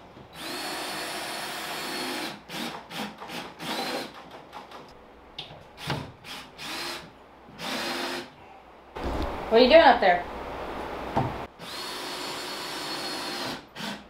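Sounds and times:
cordless drill whining: 0:00.4 - 0:03.0, 0:11.6 - 0:14.0
drill stop-start bursts: 0:00.4 - 0:04.1, 0:06.3 - 0:07.0, 0:07.6 - 0:08.3, 0:11.6 - 0:14.0.

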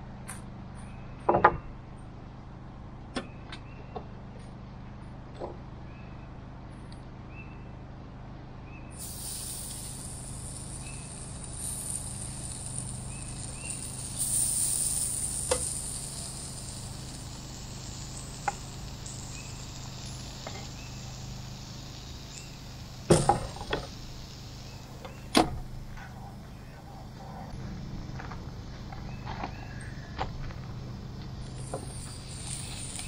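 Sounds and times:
raw chicken sizzling on grill: 0:08.9 - 0:33.0.

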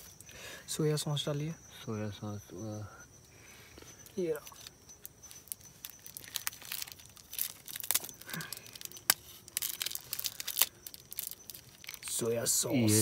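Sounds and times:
plastic sachet tearing and crinkling: 0:05.3 - 0:12.2.

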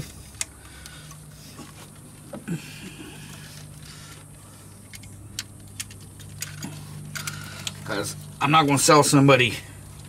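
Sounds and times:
steady low hum: 0:00.0 - 0:10.0
plastic connectors clicking and rustling: 0:03.3 - 0:08.8.

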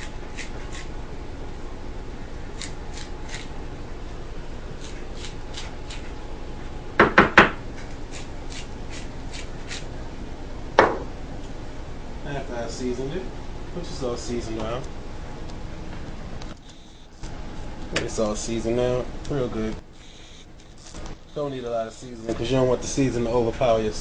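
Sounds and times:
sharp knocks: 0:07.0 - 0:07.6, 0:10.8 - 0:11.1.

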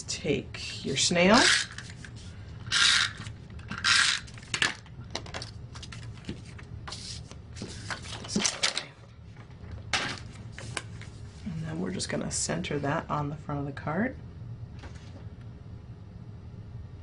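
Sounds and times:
card stock rasping and rustling: 0:05.8 - 0:08.5.

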